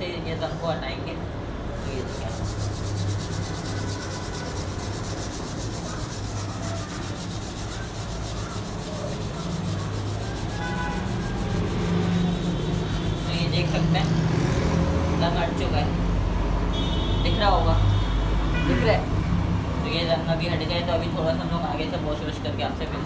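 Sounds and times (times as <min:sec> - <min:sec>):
scrubber scrubbing wheel rim: 0:01.7 - 0:13.9.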